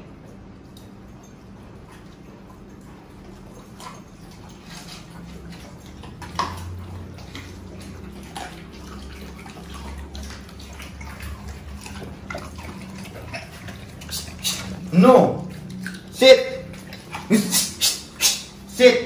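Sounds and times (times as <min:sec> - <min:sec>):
dogs chewing and licking: 0:00.0 - 0:19.0
steady low hum: 0:00.0 - 0:19.0
teeth clicking on metal bowls: 0:00.1 - 0:18.7.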